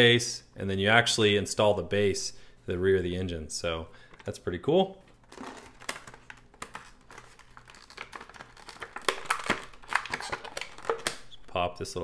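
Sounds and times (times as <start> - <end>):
plastic packaging crinkling: 5.0 - 11.4.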